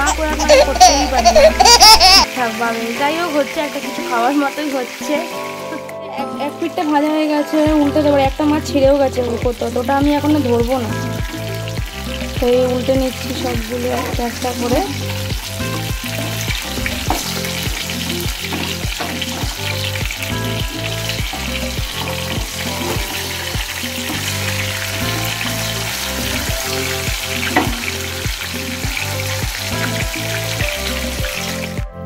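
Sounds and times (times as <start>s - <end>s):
fish sizzling in hot oil: 0.0s - 31.9s
background music with steady beat: 0.0s - 32.0s
spatula turning food in pan: 11.4s - 31.5s.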